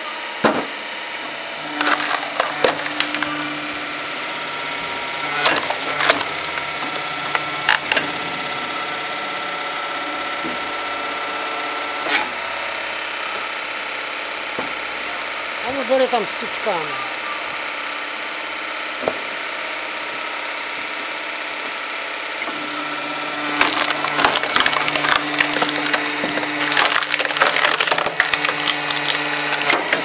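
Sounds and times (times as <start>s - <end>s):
firewood processor engine running: 0.0s - 30.0s
wood cracking and snapping: 1.6s - 3.9s, 5.2s - 8.0s, 22.4s - 30.0s.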